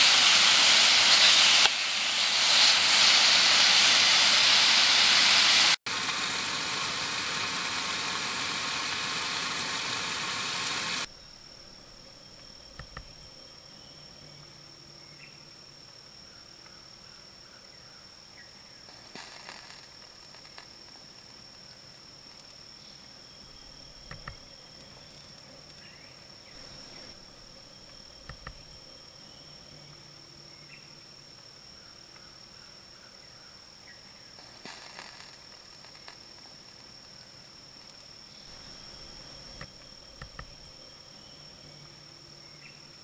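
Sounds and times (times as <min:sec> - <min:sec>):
insects droning: 0:00.0 - 0:43.0
faint clicks: 0:12.4 - 0:13.2, 0:24.0 - 0:26.0, 0:27.8 - 0:28.6, 0:39.5 - 0:40.6.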